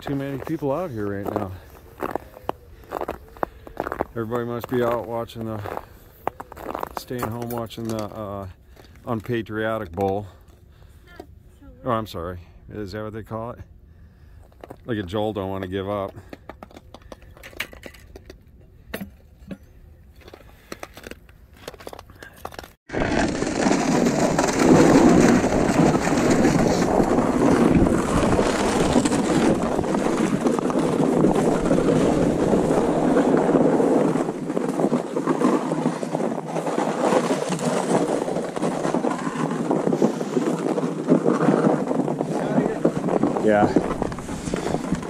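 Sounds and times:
rough scraping over snowy ice: 0.0s - 7.4s, 22.9s - 45.0s.

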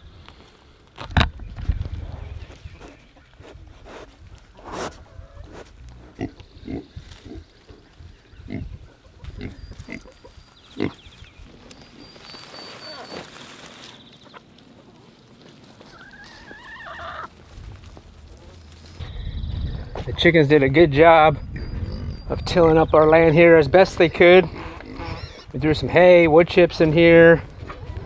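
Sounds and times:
pig grunting and snuffling: 2.1s - 11.1s, 24.2s - 25.5s.

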